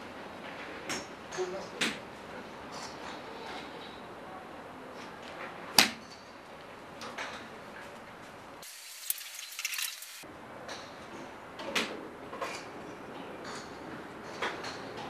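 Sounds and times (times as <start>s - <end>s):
thin crackling: 8.6s - 10.2s.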